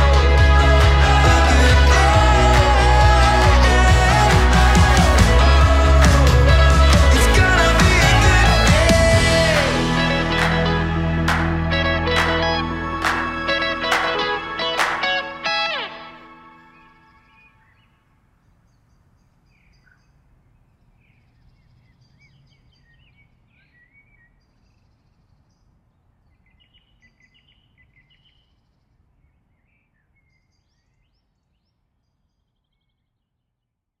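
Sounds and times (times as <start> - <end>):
low outdoor rumble: 0.0 - 14.9
birds chirping and trilling: 16.6 - 33.1.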